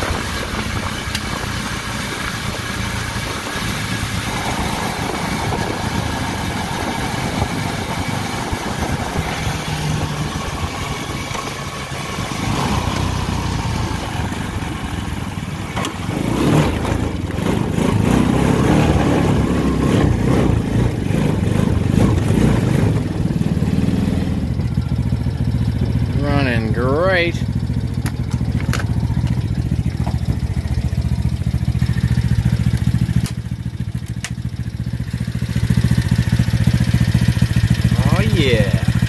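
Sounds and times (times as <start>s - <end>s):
small engine running: 0.0s - 39.0s.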